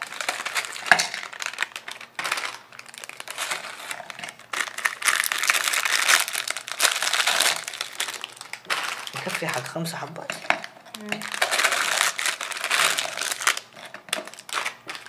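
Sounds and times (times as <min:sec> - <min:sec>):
cookies falling into plastic bowl: 0:00.0 - 0:09.7, 0:10.3 - 0:15.0
plastic wrapper crinkling: 0:00.0 - 0:15.0.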